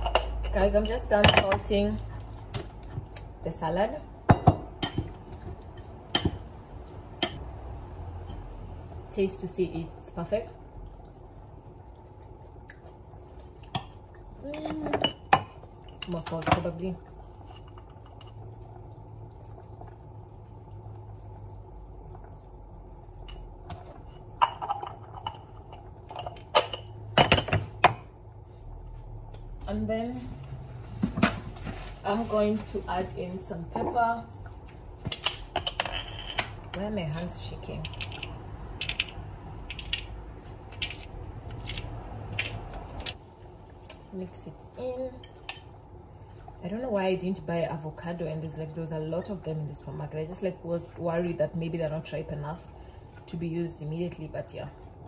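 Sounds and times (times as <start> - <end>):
pepper mill grinding: 37.8 - 43.1.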